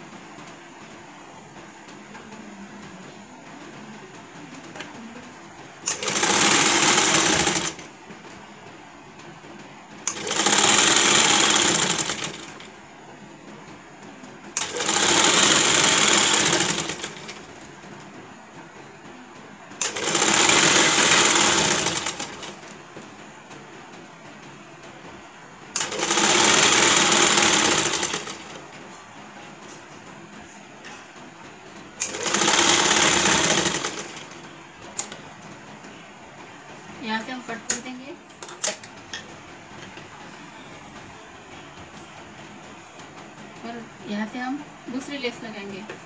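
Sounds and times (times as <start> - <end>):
sewing machine stitching: 5.8 - 7.9, 10.0 - 12.8, 14.5 - 17.7, 19.8 - 22.8, 25.7 - 28.8, 32.0 - 35.2.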